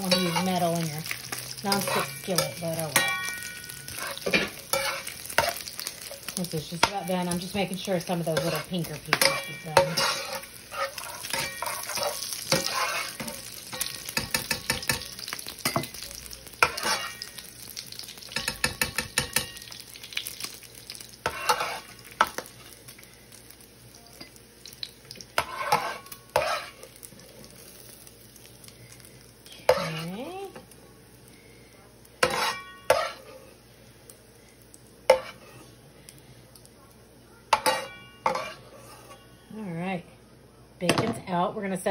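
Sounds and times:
metal spoon scraping a pan: 0.0s - 15.9s, 16.6s - 17.4s, 21.2s - 22.8s, 25.4s - 27.7s, 29.5s - 30.7s, 32.2s - 33.6s, 35.1s - 35.7s, 37.5s - 39.3s
bacon sizzling in a skillet: 0.0s - 40.0s.

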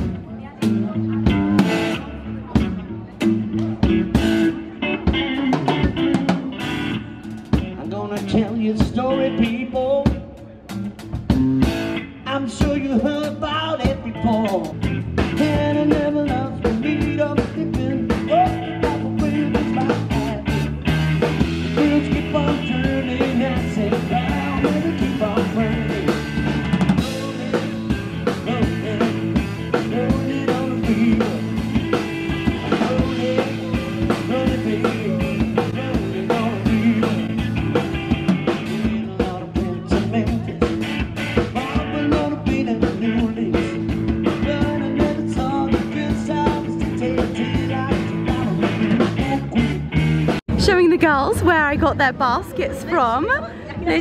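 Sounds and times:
drum kit: 0.0s - 53.3s
guitar: 0.0s - 54.0s
person singing: 12.2s - 20.7s, 21.6s - 37.7s, 38.5s - 40.8s.

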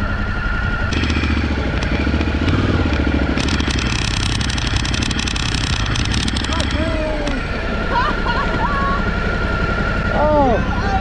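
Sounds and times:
motorcycle engine running: 0.0s - 11.0s
motorcycle clattering and scraping: 0.9s - 7.6s.

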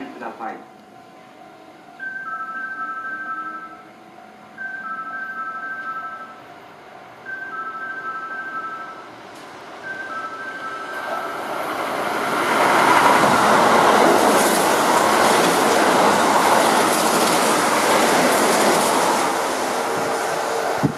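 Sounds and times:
two-tone chime: 2.0s - 4.0s, 4.6s - 6.4s, 7.3s - 9.1s, 9.8s - 11.2s
train passing at speed: 4.1s - 20.9s.

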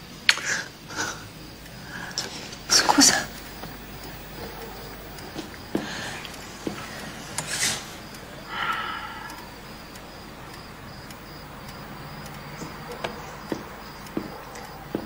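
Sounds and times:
person sharp breath: 0.4s - 10.0s
person sighing: 8.4s - 9.5s.

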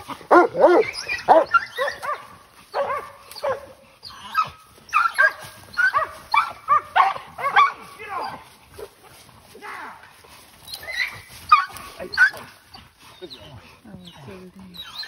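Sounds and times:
dogs barking: 0.0s - 8.9s, 10.8s - 13.4s.

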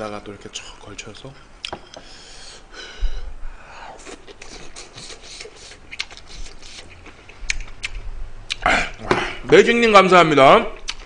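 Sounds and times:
chewing and mouth noises: 4.0s - 9.0s, 10.8s - 11.0s.

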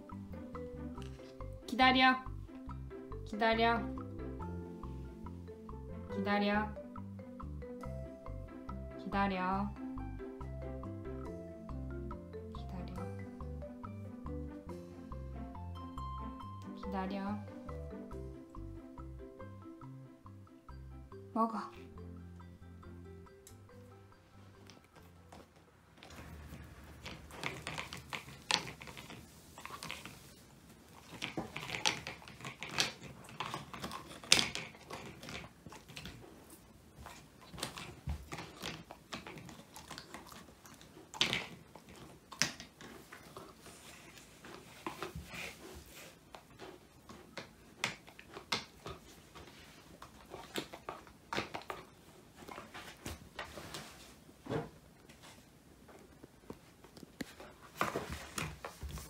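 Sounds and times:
dog crunching bones: 24.7s - 53.2s.

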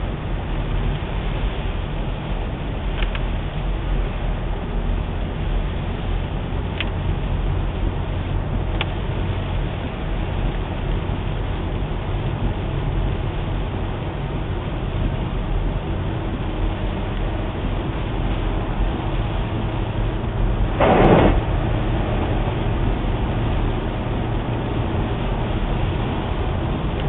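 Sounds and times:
car road and engine noise: 0.0s - 27.0s
tyres on wet road: 0.0s - 27.0s.

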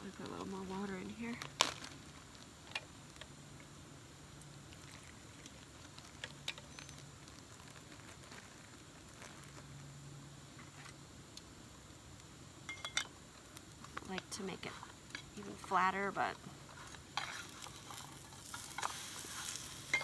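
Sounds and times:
dough frying in oil: 0.0s - 20.0s
plastic bag crinkling: 0.1s - 2.4s, 4.7s - 9.8s, 16.7s - 20.0s.

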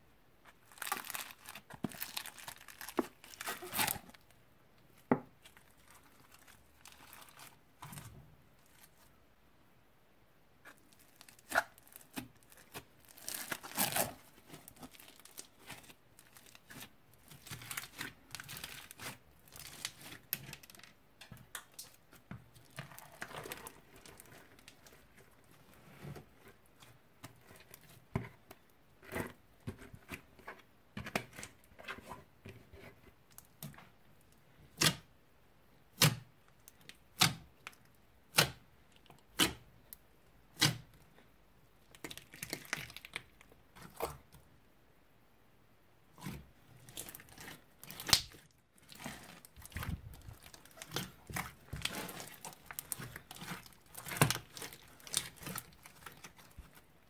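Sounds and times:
slime squishing by hand: 0.4s - 9.2s, 10.6s - 35.2s, 35.8s - 44.5s, 46.0s - 57.0s.

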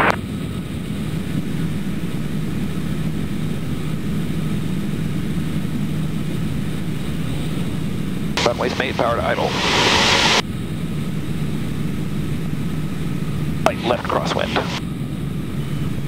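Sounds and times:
propeller plane engine droning: 0.0s - 16.0s
airflow noise: 8.4s - 11.1s, 13.6s - 14.8s.

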